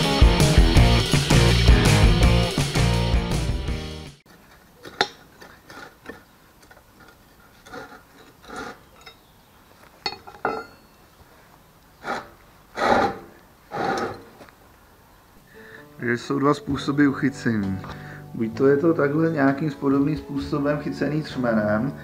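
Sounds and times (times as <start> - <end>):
steel bar clinking on concrete: 4.8 - 6.2, 7.7 - 9.3, 10.0 - 11.0.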